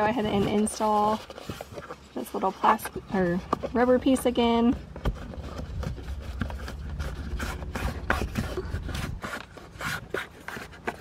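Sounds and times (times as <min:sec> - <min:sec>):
rubber strip rubbing and scraping: 0:04.8 - 0:11.0.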